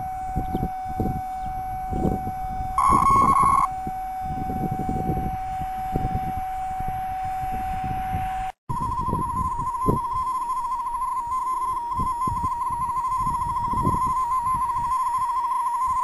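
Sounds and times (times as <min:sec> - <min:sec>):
tone flicking between two pitches: 0:00.0 - 0:05.2, 0:08.7 - 0:16.0
receiver whistle tone: 0:00.0 - 0:16.0.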